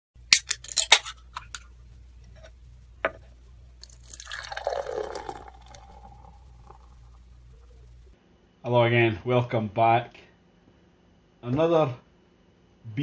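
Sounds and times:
liquid pouring in a stream: 3.8s - 7.2s.

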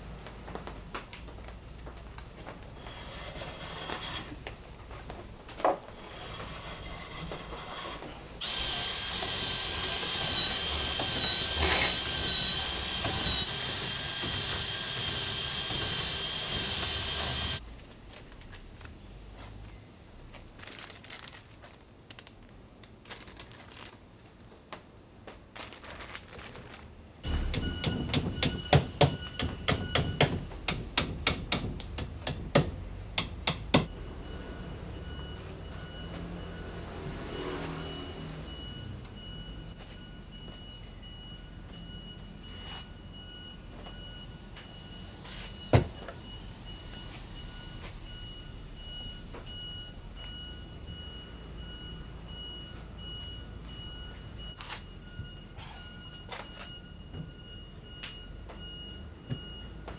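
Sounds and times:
steady motor hum: 6.0s - 17.6s
small electric motor running: 8.4s - 17.6s.

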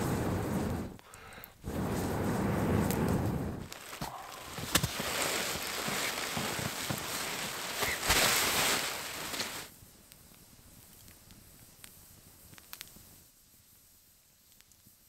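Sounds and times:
campfire crackling and popping: 0.0s - 13.3s, 14.4s - 15.0s
faint ticks: 10.0s - 13.2s, 14.4s - 15.0s.

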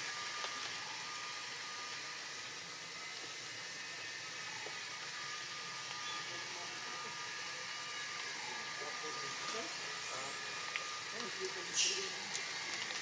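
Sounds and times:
outdoor background hiss: 0.0s - 13.0s.

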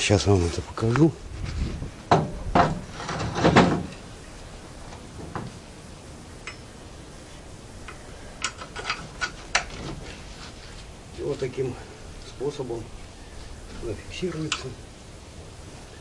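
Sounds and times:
light metal clicks: 6.4s - 6.8s, 7.8s - 9.9s, 14.3s - 14.8s
steel pin clinking: 6.4s - 6.9s, 7.8s - 9.8s.

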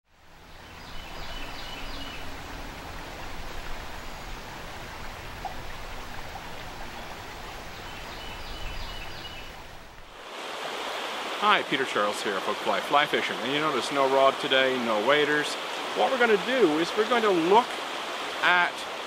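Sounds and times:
creek water rushing: 0.1s - 19.0s
bird singing high notes: 0.5s - 4.6s.

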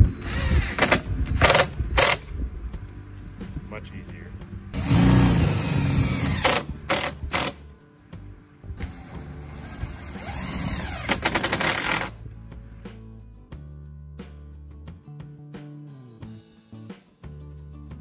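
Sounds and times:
cordless drill driving screws: 0.2s - 2.2s, 4.8s - 7.6s, 8.8s - 12.1s
background music: 1.5s - 18.0s
drill clicking: 4.8s - 7.6s, 8.8s - 12.1s.

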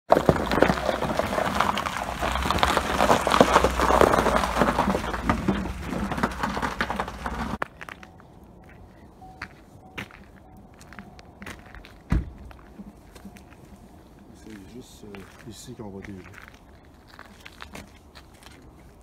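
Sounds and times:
footsteps crunching on snow: 0.1s - 8.8s, 9.4s - 19.0s
steady low rumble: 0.2s - 15.3s.

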